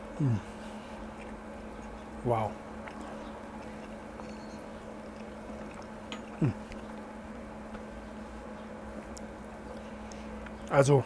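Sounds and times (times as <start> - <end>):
low background hum: 0.0 - 11.0
man humming approval: 0.1 - 0.5, 6.4 - 6.7.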